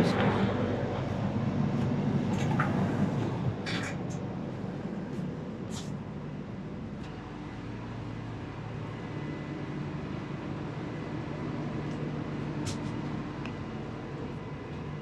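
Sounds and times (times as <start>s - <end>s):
train machinery hum: 0.0s - 15.0s.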